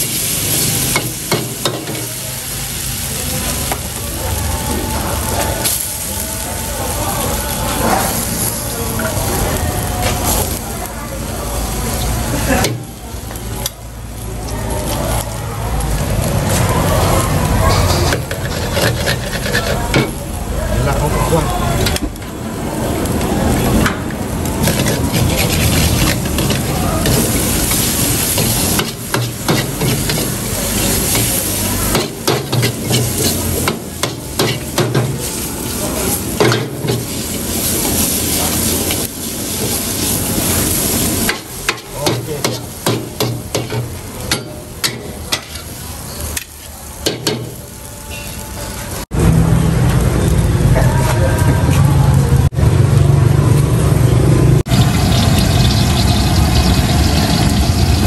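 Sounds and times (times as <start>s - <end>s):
frying sizzle: 0.0s - 58.0s
metal ladle scraping a wok: 17.7s - 20.2s, 24.6s - 34.8s.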